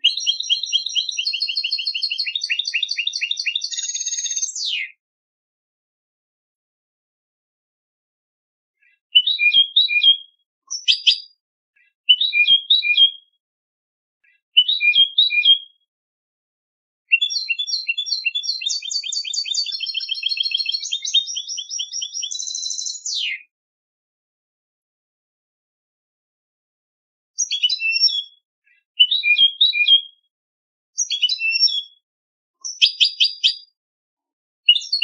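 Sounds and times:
goldfinch singing: 0.0 - 4.8, 9.2 - 11.3, 17.1 - 23.2, 27.4 - 28.3, 31.0 - 31.9, 32.6 - 33.7, 34.7 - 35.0.

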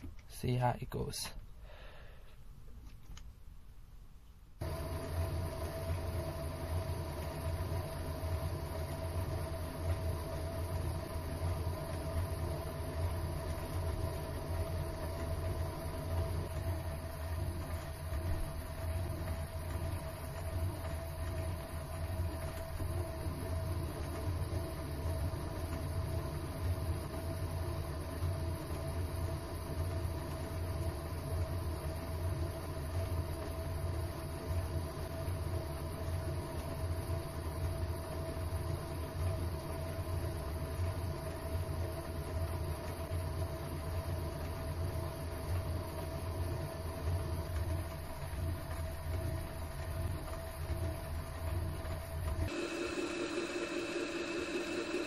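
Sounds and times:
lathe humming and whining: 4.6 - 27.0, 52.5 - 55.0.

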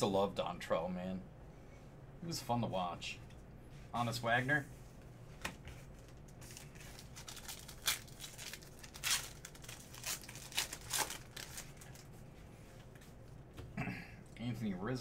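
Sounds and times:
wrapper tearing and crinkling: 6.1 - 12.1.

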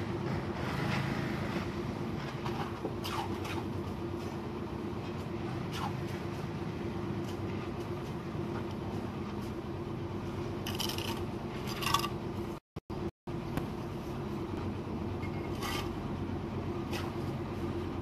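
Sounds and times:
low machine hum: 0.0 - 18.0
bricks scraping: 10.7 - 12.2.

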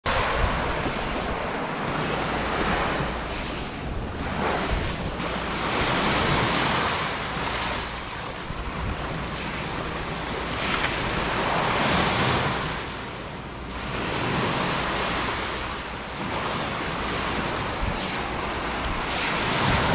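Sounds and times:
wind rumbling on microphone: 0.0 - 19.9
waves washing onto sandy beach: 0.1 - 19.9.

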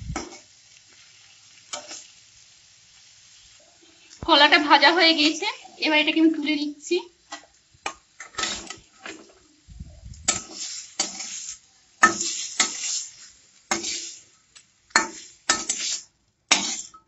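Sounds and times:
metal spatula scraping pan: 7.3 - 9.4, 10.3 - 14.3, 14.9 - 17.0.

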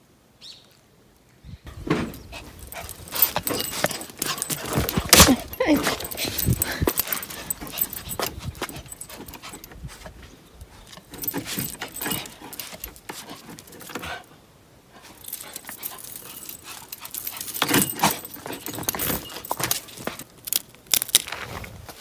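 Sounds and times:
small dogs scuffling: 1.7 - 14.3, 15.0 - 20.6
chain and collars jingling: 1.8 - 14.3, 15.0 - 21.3.

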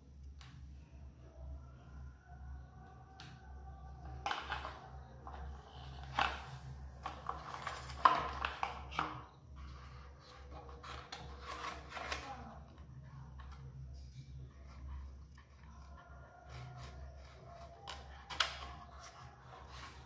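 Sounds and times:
plastic toy rubbing and scraping: 4.0 - 12.7, 13.4 - 20.0.

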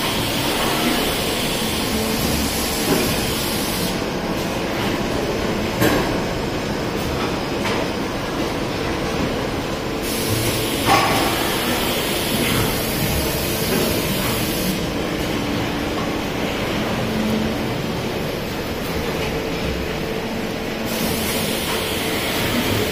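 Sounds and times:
hiss: 10.0 - 14.8, 20.9 - 22.8.

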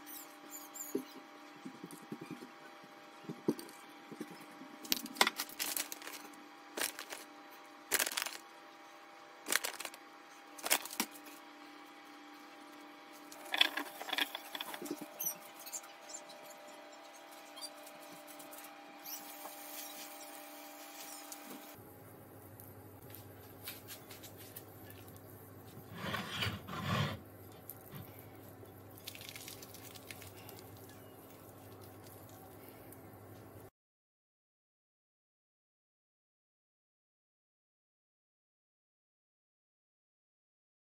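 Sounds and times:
tortilla crackling and rustling: 4.8 - 7.3, 7.9 - 8.5, 9.5 - 10.0, 10.6 - 11.4, 27.6 - 32.9
utensil scraping on cutting board: 25.9 - 27.2.

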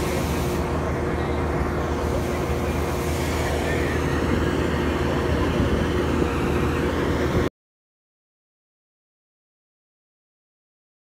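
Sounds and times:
farm machinery engine running: 0.0 - 7.5.

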